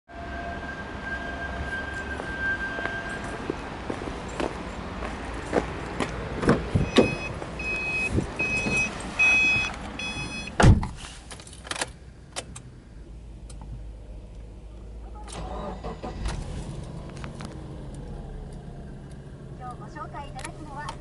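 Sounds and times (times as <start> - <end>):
car engine starting and idling: 6.2 - 21.0
car warning chime beeps: 6.8 - 10.6
car door closing thump: 10.6 - 11.0.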